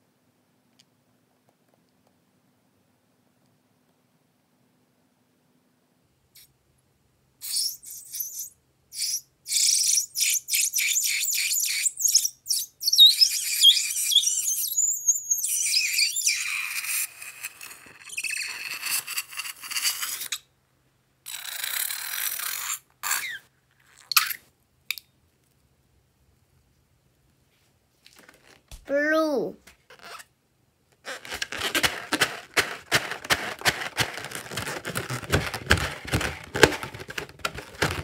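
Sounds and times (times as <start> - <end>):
rubber balloon squeaks: 7.4 - 20.4, 21.3 - 24.2, 29.9 - 30.3, 31.0 - 38.0
liquid spurting from balloon nozzle: 31.0 - 38.0.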